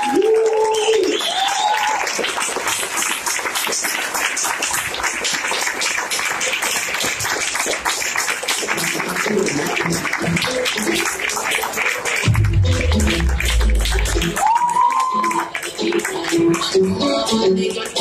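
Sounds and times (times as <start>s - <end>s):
audience cheer: 0.0s - 2.2s, 12.9s - 15.5s
audience clapping: 0.0s - 18.0s
music: 5.0s - 18.0s.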